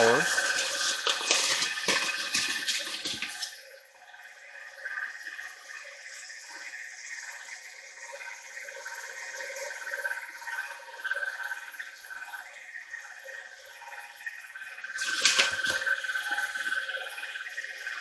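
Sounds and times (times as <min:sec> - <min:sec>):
flour pouring into steel bowl: 0:00.0 - 0:03.6, 0:15.0 - 0:16.8
sticky dough mixed by hand: 0:00.0 - 0:03.6.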